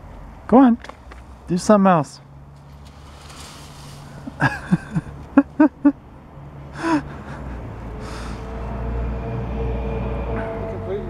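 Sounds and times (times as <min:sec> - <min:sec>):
person laughing: 0:04.2 - 0:06.0, 0:06.8 - 0:08.4.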